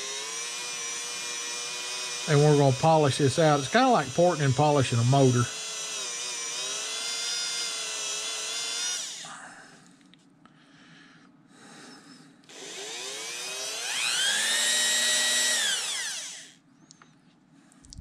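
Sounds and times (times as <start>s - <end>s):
rotary tool whine: 0.0s - 9.3s, 12.0s - 16.6s.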